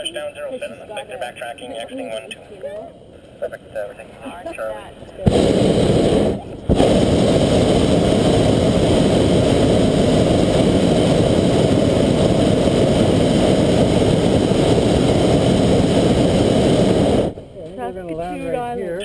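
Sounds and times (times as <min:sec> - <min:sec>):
propane burner blast: 0:05.2 - 0:18.5.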